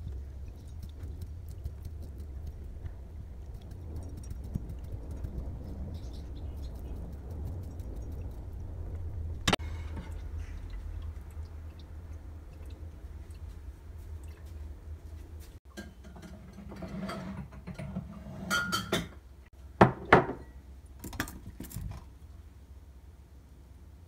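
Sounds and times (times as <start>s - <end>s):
steady low hum: 0.0s - 15.6s.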